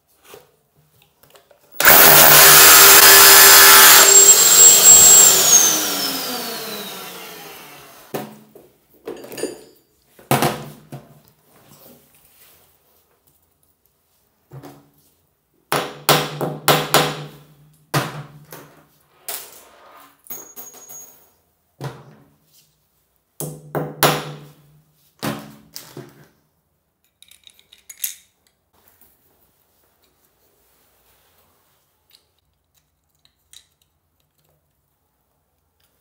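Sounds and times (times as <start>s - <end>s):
hammer drill drilling into tile: 1.8s - 8.1s.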